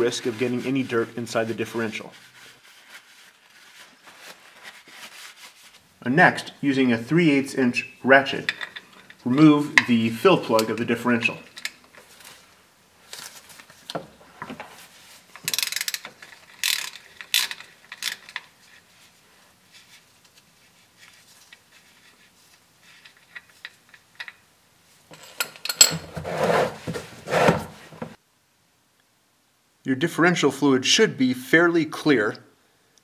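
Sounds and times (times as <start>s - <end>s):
ratchet clicking: 15.4s - 18.4s
knocks and rustles: 25.1s - 28.2s.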